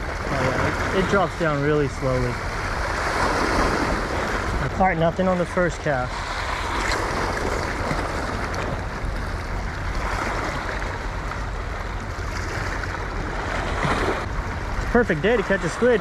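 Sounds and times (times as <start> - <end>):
waves breaking on rocks: 0.0 - 16.0.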